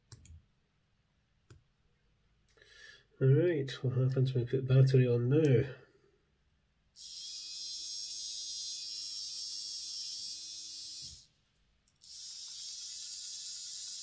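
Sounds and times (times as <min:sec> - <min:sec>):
model train motor whirring: 0:07.0 - 0:11.3, 0:12.0 - 0:14.0.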